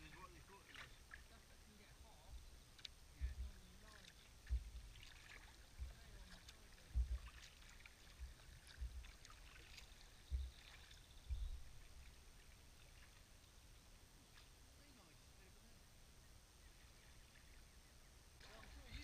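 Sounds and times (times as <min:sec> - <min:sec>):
kayak paddle strokes: 0:00.0 - 0:01.4, 0:02.2 - 0:13.6
water splashing and dripping: 0:00.0 - 0:01.6, 0:02.3 - 0:13.6, 0:18.4 - 0:19.0.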